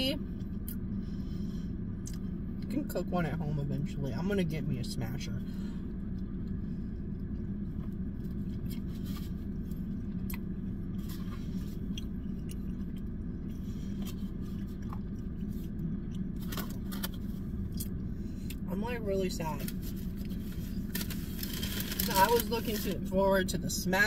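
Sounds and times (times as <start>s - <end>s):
low car cabin hum: 0.0s - 24.0s
person chewing food: 5.8s - 18.6s.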